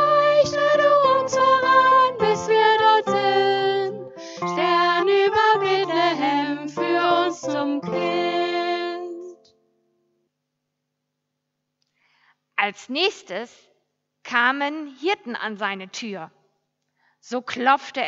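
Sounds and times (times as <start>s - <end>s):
woman singing: 0.0s - 9.4s.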